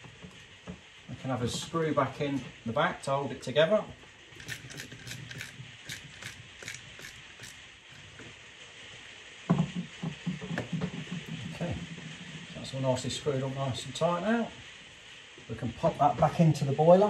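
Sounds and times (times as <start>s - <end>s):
screwdriver turning screw in plastic: 4.4s - 8.2s
heavy rain on a roof: 7.7s - 17.0s.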